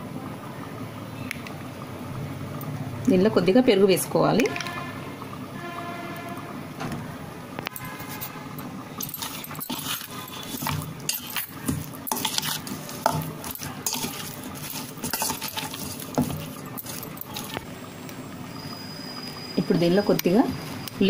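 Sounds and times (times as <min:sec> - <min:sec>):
spoon scraping metal bowl: 0:09.0 - 0:17.6.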